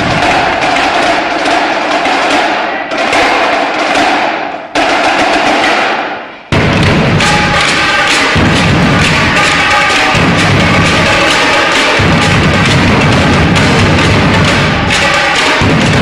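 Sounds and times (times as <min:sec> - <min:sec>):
bass drums and snares pounding: 0:06.5 - 0:07.6.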